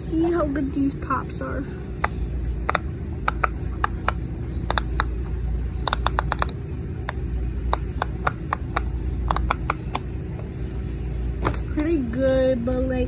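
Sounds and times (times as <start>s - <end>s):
low hum: 0.0s - 13.0s
silicone fidget toy popping: 2.0s - 10.1s.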